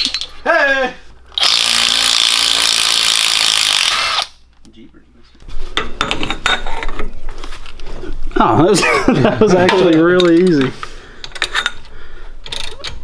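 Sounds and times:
impact wrench running: 1.4 - 4.4.

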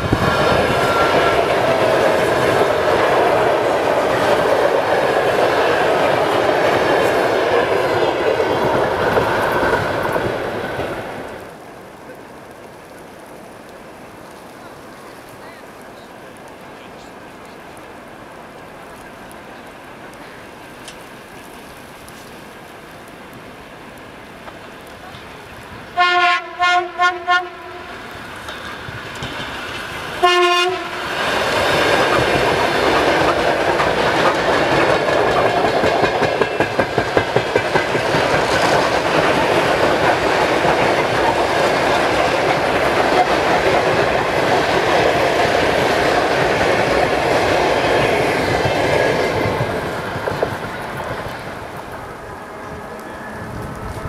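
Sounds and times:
train wheels clattering on rails: 0.0 - 11.5, 28.1 - 54.0
train horn blasts: 26.0 - 28.0, 30.2 - 31.0, 52.2 - 54.0.

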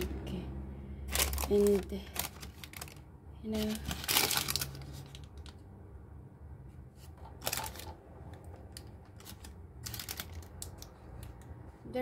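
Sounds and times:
paper rustling: 1.1 - 5.6, 7.0 - 8.0.

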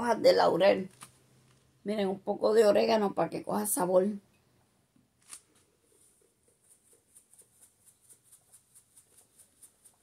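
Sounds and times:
spice shaker rattling: 6.6 - 10.0.

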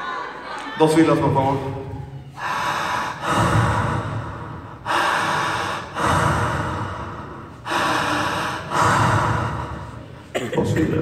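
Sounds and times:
deep breathing into microphone: 2.3 - 10.3.

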